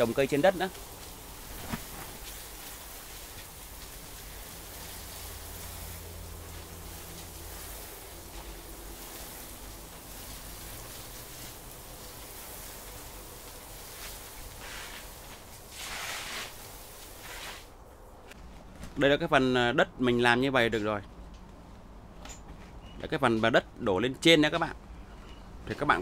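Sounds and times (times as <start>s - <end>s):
hose nozzle spraying water on soil: 0.0s - 17.8s.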